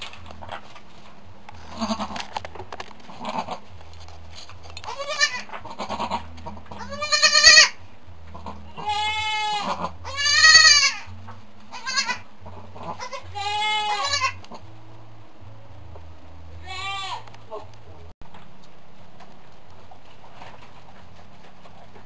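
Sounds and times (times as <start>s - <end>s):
goats bleating: 1.7s - 2.2s, 4.9s - 11.1s, 11.7s - 14.5s, 16.6s - 17.3s.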